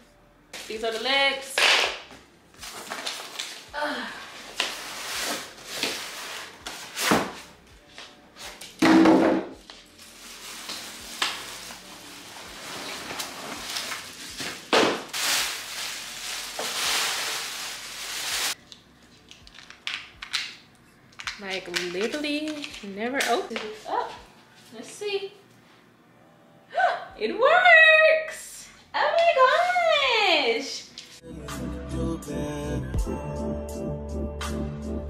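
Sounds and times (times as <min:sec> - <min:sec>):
plastic wrap rustling: 0:02.6 - 0:07.5, 0:09.8 - 0:18.6
packing scraping against cardboard: 0:12.4 - 0:14.6.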